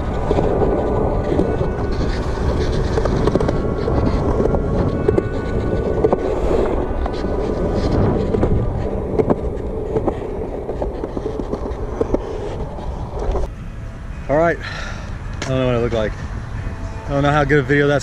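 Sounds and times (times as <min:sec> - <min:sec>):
skateboard clacks: 0:00.0 - 0:13.5
skateboard wheels rumbling on concrete: 0:00.0 - 0:13.5.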